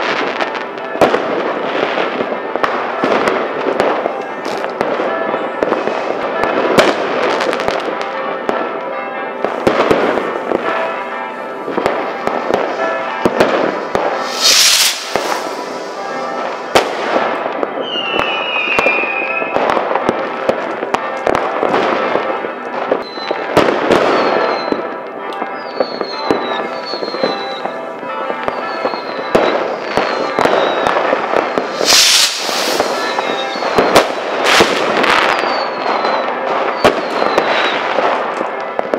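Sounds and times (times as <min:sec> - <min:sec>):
firecracker bangs and crackling: 0:00.0 - 0:38.9
shrill firework whistles: 0:14.2 - 0:16.0, 0:17.8 - 0:19.7, 0:23.0 - 0:23.4, 0:24.0 - 0:24.8, 0:25.6 - 0:27.8, 0:28.5 - 0:37.9.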